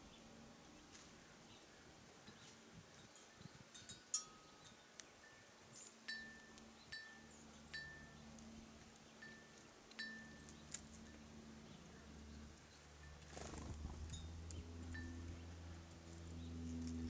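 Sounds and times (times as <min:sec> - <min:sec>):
faint metal wind chime ringing: 0:02.9 - 0:08.2, 0:09.2 - 0:11.5, 0:14.0 - 0:15.4.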